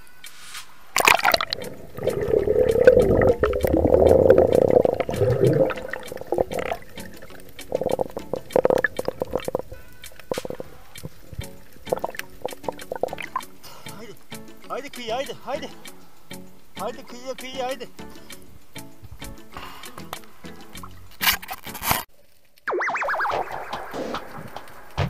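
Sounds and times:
underwater clicks and knocks: 1.0s - 13.5s
underwater rushing and bubbling: 1.0s - 13.6s.

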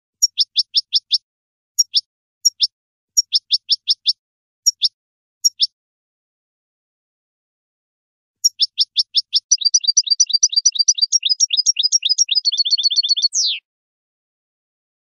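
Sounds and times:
bird chirping and twittering: 0.2s - 1.2s, 1.8s - 5.7s, 8.4s - 13.6s.

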